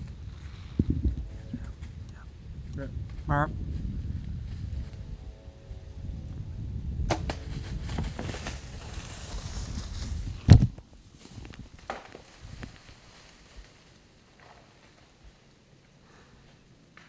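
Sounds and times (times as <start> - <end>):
low rumble: 0.0 - 11.8.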